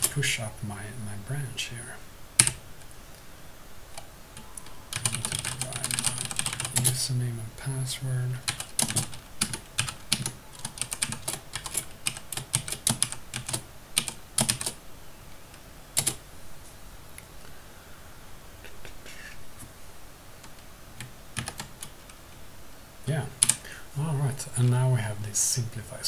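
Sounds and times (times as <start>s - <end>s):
keyboard typing: 2.4s - 2.6s, 4.0s - 7.0s, 8.4s - 14.8s, 16.0s - 16.2s, 20.4s - 22.0s, 23.4s - 23.6s.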